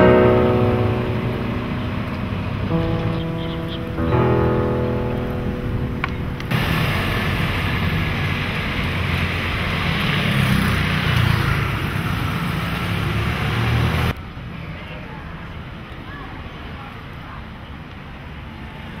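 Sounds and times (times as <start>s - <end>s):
quiet street background: 0.0s - 19.0s
motor scooters riding past: 6.5s - 14.1s.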